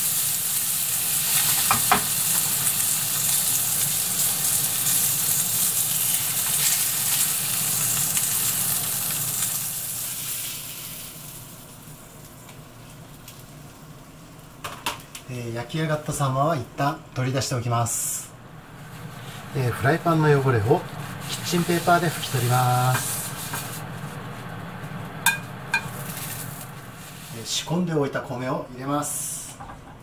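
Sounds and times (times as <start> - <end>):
fish sizzling in a frying pan: 0.0 - 13.9, 18.6 - 27.4.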